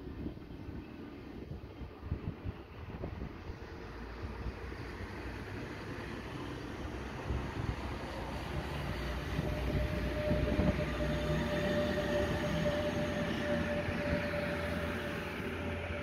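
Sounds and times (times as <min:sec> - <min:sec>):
locomotive whine: 0:00.0 - 0:16.0
train wheels rumbling on rails: 0:00.0 - 0:16.0.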